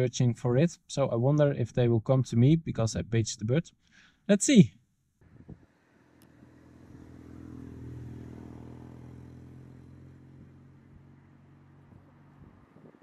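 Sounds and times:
vehicle engine passing by: 5.8s - 13.0s.

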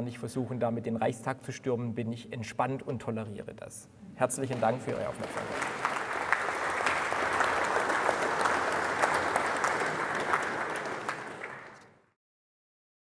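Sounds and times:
audience applauding: 4.4s - 12.1s.

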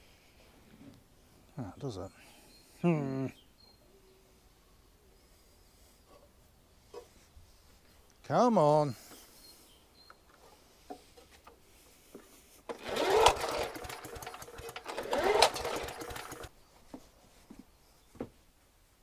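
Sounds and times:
engine cranking whir: 12.7s - 16.5s
recoil starter pull: 12.7s - 16.5s.

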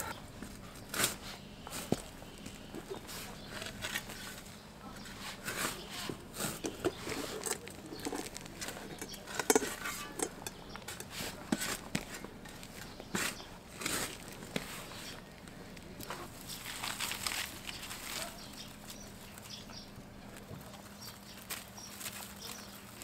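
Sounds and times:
spade digging into soil: 0.8s - 2.1s, 5.0s - 15.2s.

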